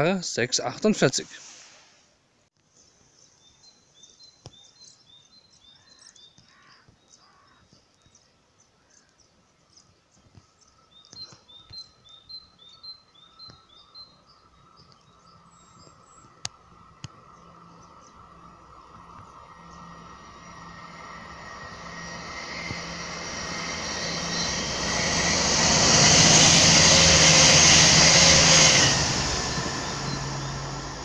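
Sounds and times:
small bird singing: 2.7 - 25.8
approaching train hum: 10.8 - 31.0.

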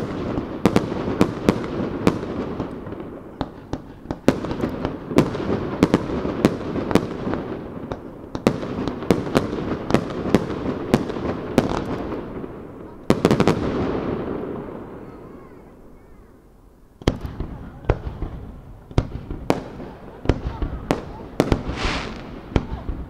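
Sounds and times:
fireworks bursting: 20.8 - 23.0.

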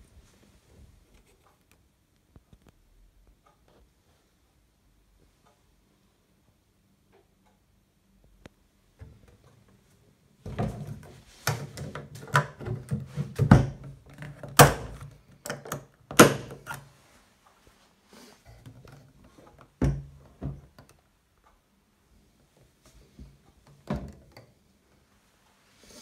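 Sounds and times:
plastic box clicks and knocks: 10.5 - 16.8.

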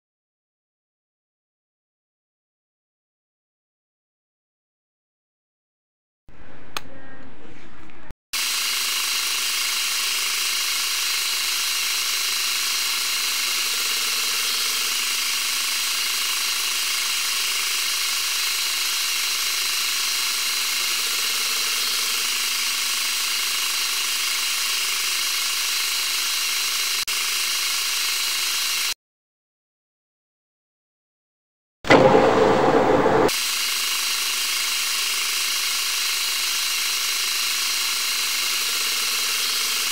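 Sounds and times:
metal lathe drilling: 8.4 - 29.0, 31.9 - 39.9.

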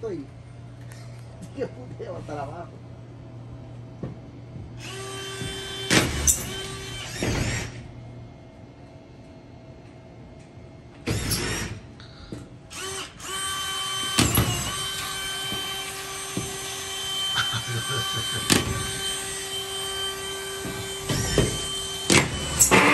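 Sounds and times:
cordless drill motor whine: 4.8 - 7.8, 12.7 - 22.9.

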